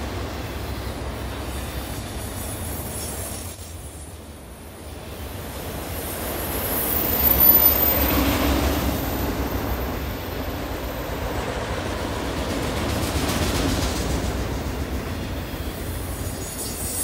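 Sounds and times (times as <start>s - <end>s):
train wheels rumbling on rails: 0.0s - 17.0s
high squeal: 6.3s - 8.2s.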